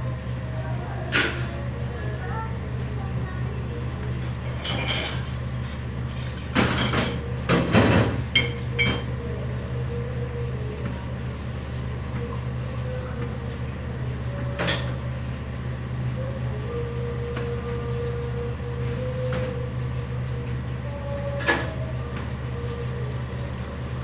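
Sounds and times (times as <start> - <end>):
kitchen equipment hum: 0.0 - 24.0
utensils and containers clinking: 4.3 - 5.4, 8.1 - 9.2.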